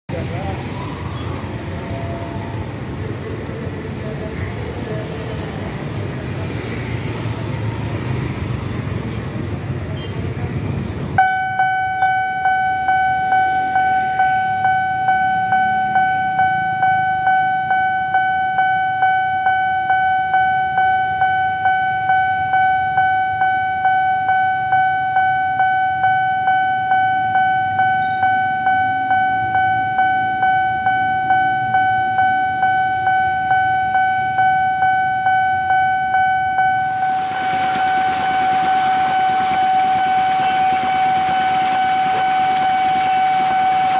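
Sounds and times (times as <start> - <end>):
crossing bell dinging: 11.2 - 43.9.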